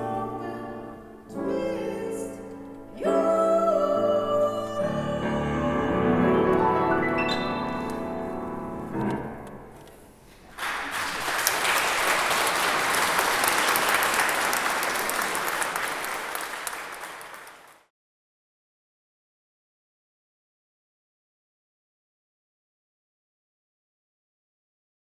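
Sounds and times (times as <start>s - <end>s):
choir and piano chord: 0.0s - 8.9s
audience applause: 10.4s - 17.9s.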